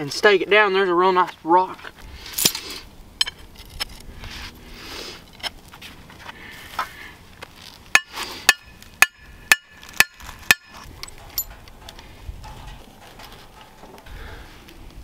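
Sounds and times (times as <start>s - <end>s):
hammer striking metal stake: 7.9s - 11.6s.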